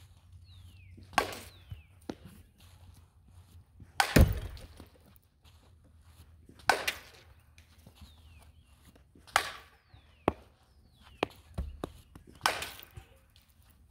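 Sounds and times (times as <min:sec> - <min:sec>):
bat cracking softballs: 0:00.8 - 0:02.6, 0:03.8 - 0:05.2, 0:06.4 - 0:13.9.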